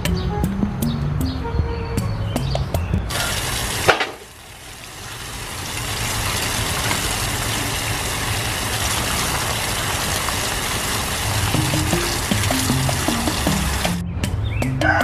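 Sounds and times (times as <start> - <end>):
tap water splashing: 3.1 - 14.0.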